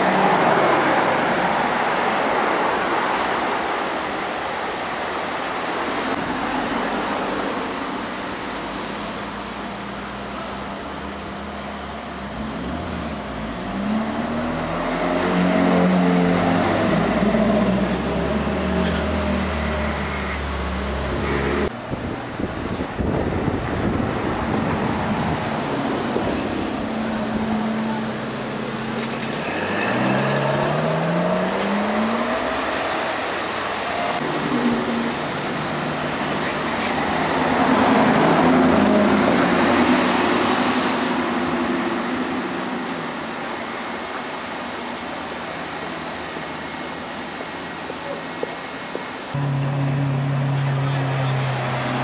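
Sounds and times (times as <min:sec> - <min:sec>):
sports car engines passing: 0:06.0 - 0:21.7, 0:29.6 - 0:43.3, 0:49.3 - 0:52.0
cars accelerating away: 0:29.6 - 0:33.4.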